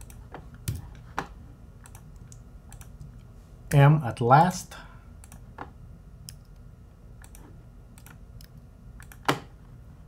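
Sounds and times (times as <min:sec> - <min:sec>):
keyboard and mouse clicking: 0:01.8 - 0:03.1, 0:05.2 - 0:05.5, 0:07.2 - 0:09.4.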